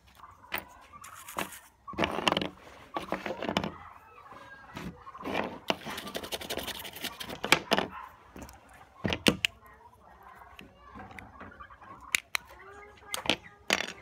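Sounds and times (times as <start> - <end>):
handling noise: 0.0 - 9.8
toothbrush scrubbing plastic: 0.8 - 2.1, 5.2 - 7.7.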